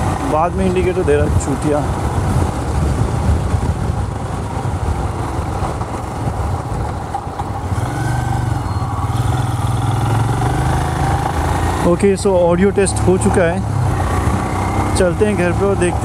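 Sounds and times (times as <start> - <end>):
motorcycle engine running: 0.0 - 16.0
wind noise: 0.0 - 16.0.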